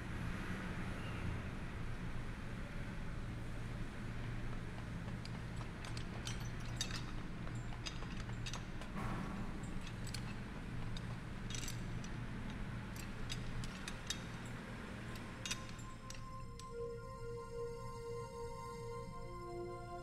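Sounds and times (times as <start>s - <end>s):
low machine hum: 0.0s - 20.0s
soft sustained musical tones: 11.0s - 20.0s.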